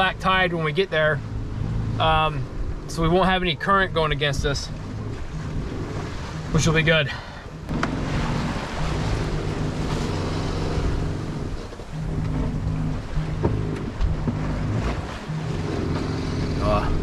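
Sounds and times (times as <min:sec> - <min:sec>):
steady low hum: 0:00.0 - 0:17.0
water rushing along hull: 0:00.0 - 0:17.0
wind on microphone: 0:07.6 - 0:17.0.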